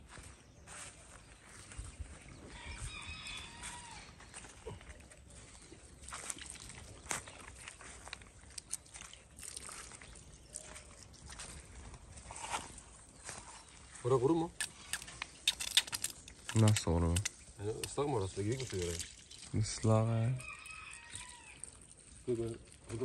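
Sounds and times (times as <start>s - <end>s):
rooster crowing: 2.5s - 4.2s, 20.4s - 21.7s.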